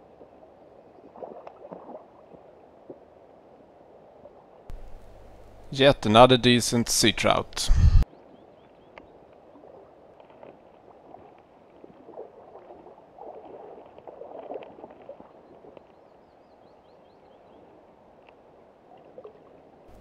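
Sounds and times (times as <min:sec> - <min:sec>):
water splashing and sloshing: 0:00.0 - 0:05.6, 0:08.3 - 0:16.2, 0:17.7 - 0:20.0.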